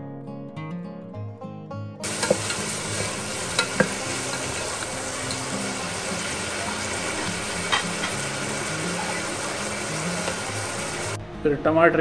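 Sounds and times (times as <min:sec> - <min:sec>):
onions sizzling in hot fat: 0:02.0 - 0:11.2.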